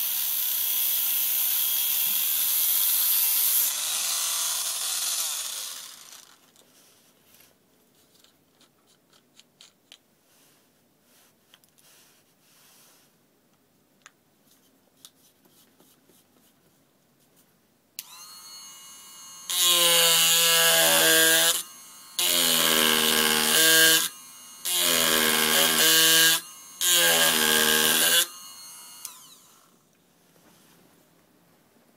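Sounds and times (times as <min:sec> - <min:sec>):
electric carving machine buzzing: 0:00.0 - 0:06.4, 0:18.0 - 0:29.8
gouge cutting into wood: 0:19.5 - 0:28.4.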